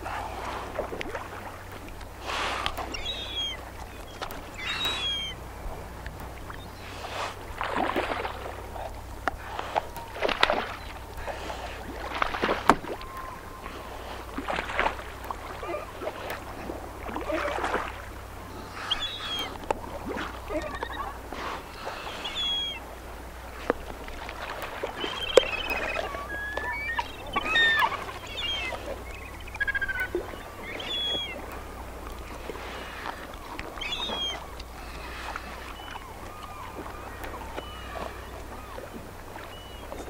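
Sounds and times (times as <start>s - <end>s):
steady low rumble: 0.0s - 25.0s
high falling bird calls: 2.3s - 7.4s, 18.5s - 19.6s, 20.5s - 22.9s, 24.8s - 31.8s, 32.7s - 40.0s.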